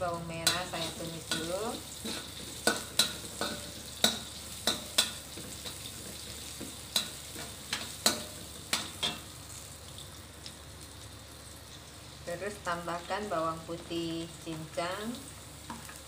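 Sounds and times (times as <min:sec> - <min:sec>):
oil sizzling: 0:00.0 - 0:16.0
metal spatula scraping a wok: 0:00.4 - 0:09.2.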